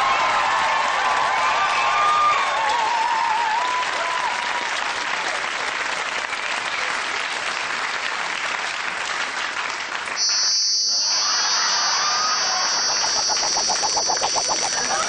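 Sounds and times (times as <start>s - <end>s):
people cheering: 0.0s - 4.6s, 11.0s - 15.0s
audience applauding: 0.0s - 10.2s.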